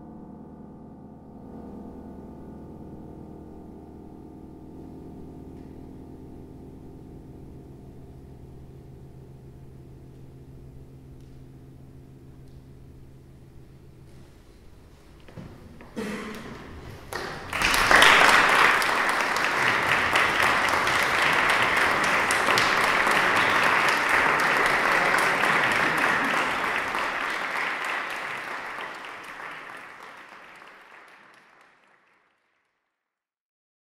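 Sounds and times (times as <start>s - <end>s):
audience applauding: 15.8s - 32.6s.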